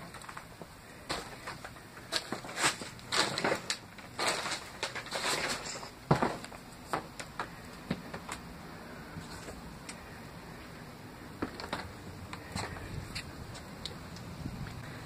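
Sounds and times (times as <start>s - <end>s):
footsteps crunching on paper: 0.0s - 8.4s.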